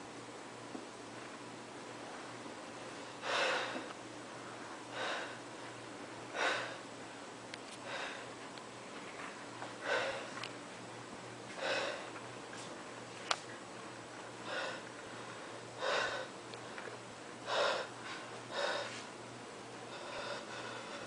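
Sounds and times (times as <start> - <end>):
faint low hum: 0.0 - 21.0
person breathing hard: 3.0 - 6.8, 7.8 - 8.4, 9.8 - 10.4, 11.5 - 12.2, 14.4 - 19.1, 19.9 - 21.0.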